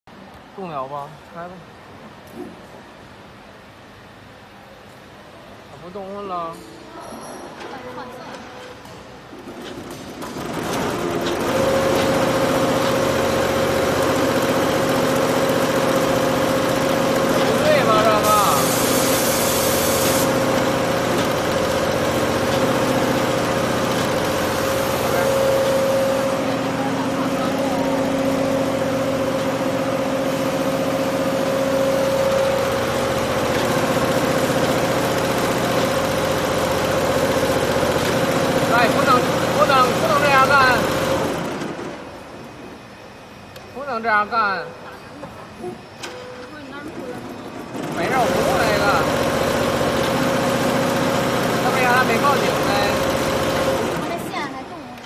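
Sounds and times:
embroidery machine stitching: 9.5 - 41.9, 47.6 - 54.3.

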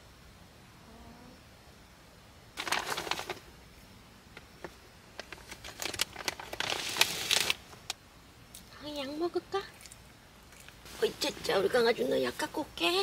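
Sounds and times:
plastic crinkling: 2.6 - 3.5, 4.6 - 8.0.

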